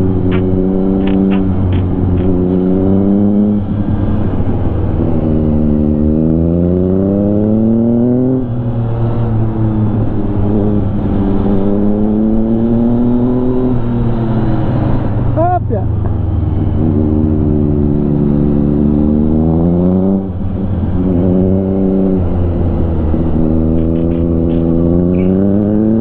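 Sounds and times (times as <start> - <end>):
motorcycle engine accelerating: 0.0 - 26.0.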